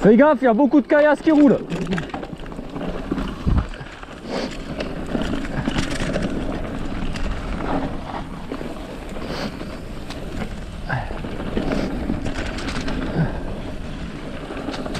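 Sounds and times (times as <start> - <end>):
bike tyres clattering over stones: 0.0 - 14.9
wind rushing on microphone: 3.2 - 3.9.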